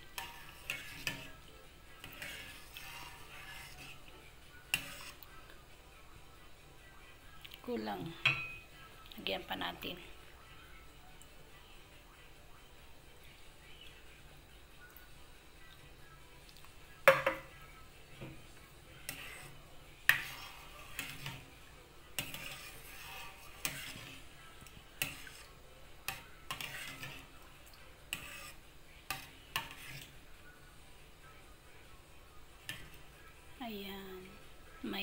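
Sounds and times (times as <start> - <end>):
metal spoon scraping a pot: 0.0 - 5.3, 18.9 - 27.4, 28.0 - 30.2.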